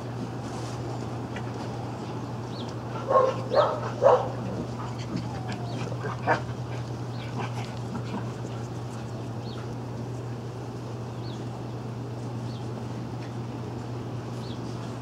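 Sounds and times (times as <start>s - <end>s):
dogs barking: 3.0s - 8.3s.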